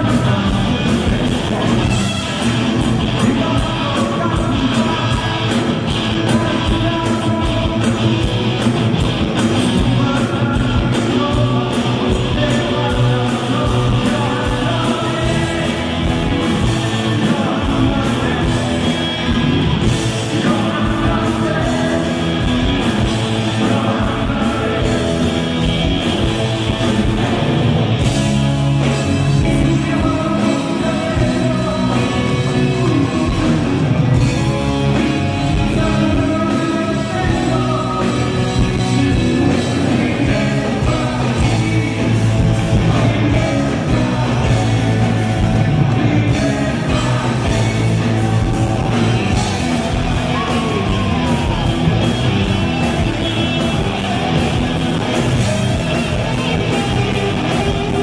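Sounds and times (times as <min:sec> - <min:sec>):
live rock band playing: 0:00.0 - 0:58.0
man singing: 0:00.0 - 0:58.0.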